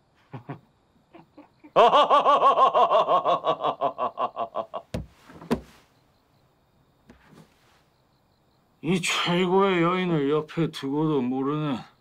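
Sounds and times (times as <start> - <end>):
hearty laughter: 0.2 - 5.0
knocks on wooden table: 5.0 - 5.7.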